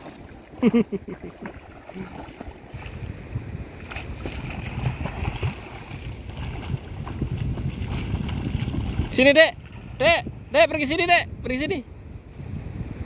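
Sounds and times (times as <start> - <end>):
splashing in shallow water: 0.0 - 10.4
wind on microphone: 0.0 - 13.0.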